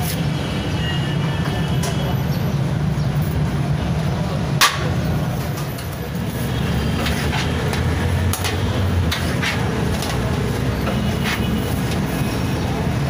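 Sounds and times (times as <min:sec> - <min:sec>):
street traffic hum: 0:00.0 - 0:13.0.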